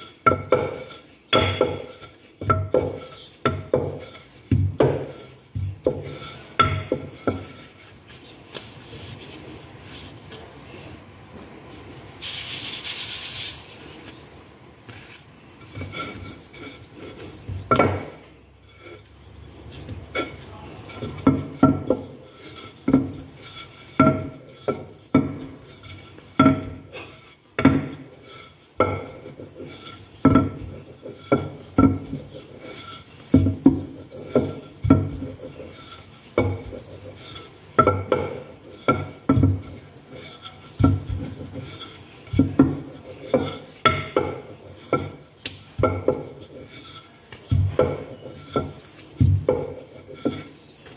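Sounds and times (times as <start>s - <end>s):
rolling pin rolling dough: 0.0s - 50.9s
rolling pin knocking on counter: 0.2s - 7.5s, 17.6s - 18.2s, 26.4s - 26.9s, 27.6s - 28.2s, 28.8s - 46.5s, 47.4s - 50.5s.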